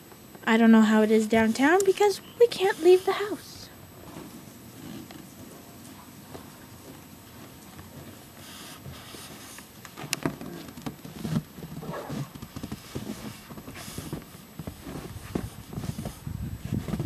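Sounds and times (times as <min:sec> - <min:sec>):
footsteps crunching in snow: 0:11.1 - 0:17.0.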